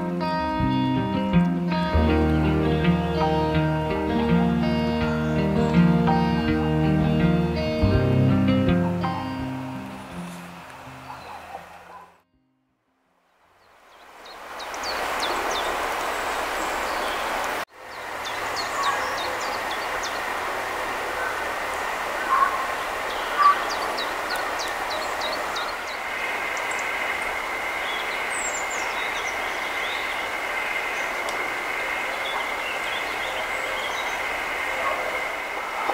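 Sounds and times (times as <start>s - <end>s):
small birds chirping: 1.4s - 8.0s, 8.8s - 12.2s, 13.6s - 35.9s.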